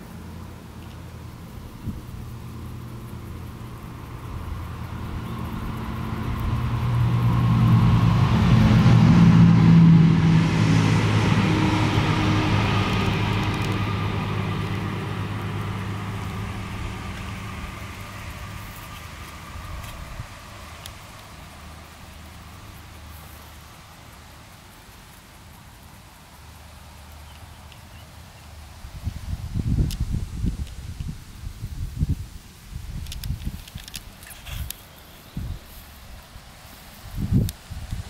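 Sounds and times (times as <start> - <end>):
motor vehicle passing by: 0.0 - 25.4.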